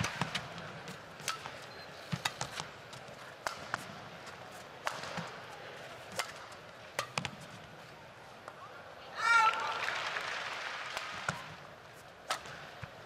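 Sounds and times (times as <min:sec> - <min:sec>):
racket striking shuttlecock: 0:00.0 - 0:07.6, 0:12.2 - 0:13.0
hum of arena crowd: 0:00.0 - 0:13.0
shoe squeaks on court floor: 0:01.6 - 0:02.6.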